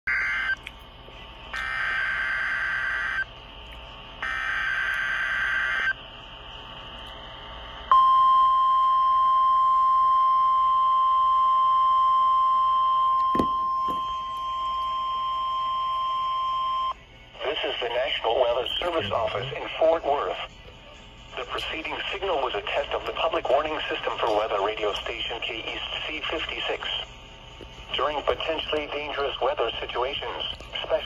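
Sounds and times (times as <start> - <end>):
single-pitch alarm tone: 0.1 - 0.6, 1.5 - 3.3, 4.2 - 6.0, 7.9 - 17.0
screechy digital data bursts: 1.5 - 3.3, 4.2 - 6.0.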